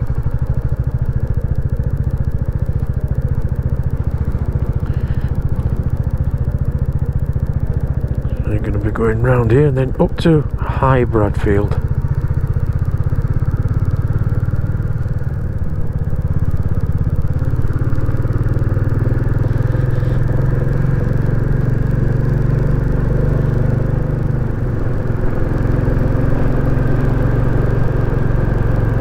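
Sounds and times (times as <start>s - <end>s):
motorcycle engine pulling: 17.5s - 29.0s.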